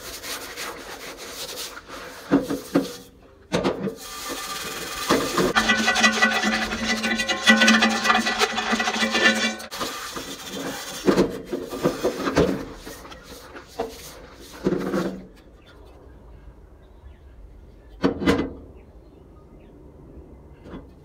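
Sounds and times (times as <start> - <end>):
scrubbing pan in water: 4.0 - 15.0.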